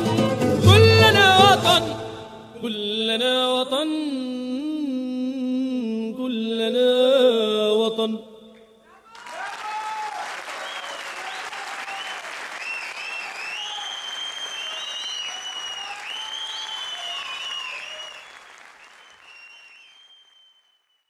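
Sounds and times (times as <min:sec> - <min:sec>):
audience applauding: 0:09.1 - 0:20.6
shrill whistles: 0:10.4 - 0:21.0.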